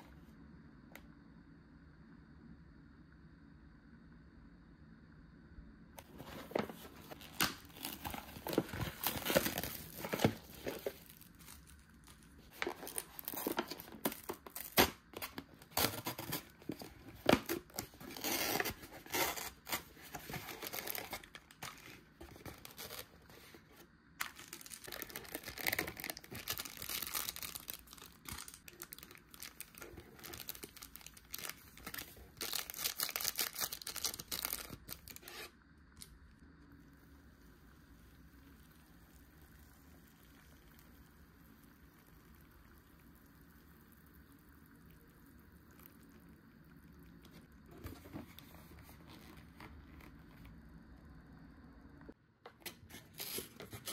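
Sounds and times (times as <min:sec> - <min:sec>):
plastic packaging tearing and crinkling: 0:06.0 - 0:23.6, 0:24.2 - 0:35.5, 0:52.6 - 0:53.9.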